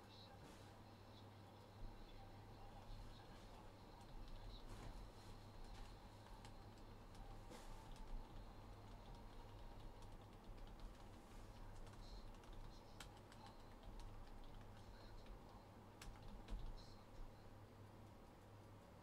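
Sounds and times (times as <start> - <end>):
typing on a keyboard: 5.6 - 17.3.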